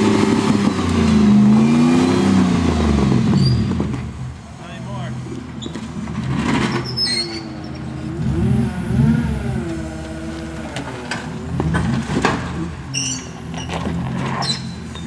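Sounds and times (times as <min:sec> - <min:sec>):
buggy engine revving: 0:00.0 - 0:15.0.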